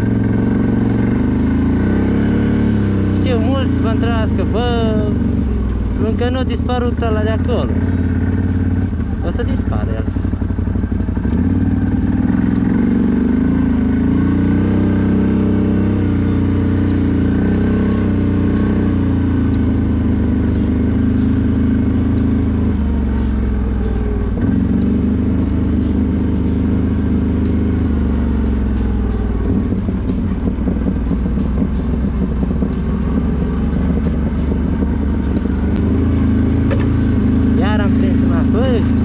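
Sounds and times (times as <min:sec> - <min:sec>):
atv engine revving: 0:00.0 - 0:39.0.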